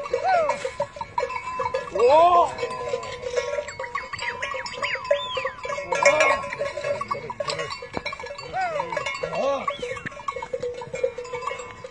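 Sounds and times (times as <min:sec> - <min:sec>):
cattle bells ringing: 0:00.0 - 0:11.9
animal calls: 0:03.7 - 0:06.4, 0:08.4 - 0:10.5.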